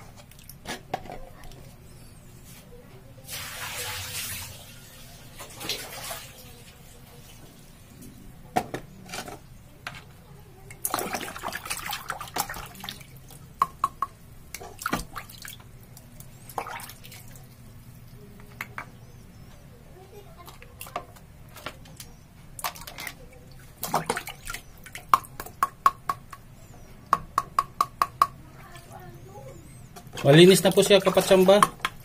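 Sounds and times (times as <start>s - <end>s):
tap water running: 3.3s - 7.4s, 10.7s - 18.9s.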